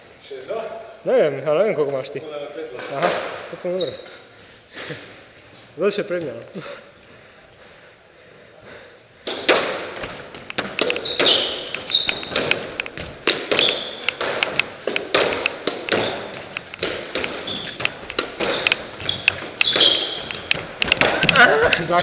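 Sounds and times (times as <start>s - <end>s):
shoes squeaking on floor: 2.2s - 5.8s, 9.0s - 22.0s
squash ball smacking: 9.2s - 22.0s.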